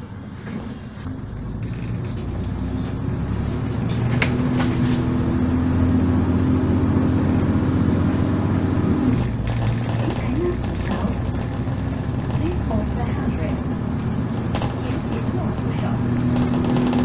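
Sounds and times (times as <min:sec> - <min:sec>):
bus engine humming: 0:00.0 - 0:17.0
sharp rattles: 0:09.2 - 0:17.0.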